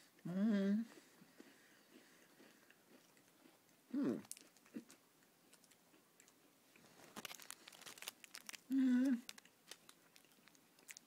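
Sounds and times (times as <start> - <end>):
person humming mm: 0.0 - 0.9, 8.7 - 9.3
chewing crunchy cracker: 1.3 - 11.0.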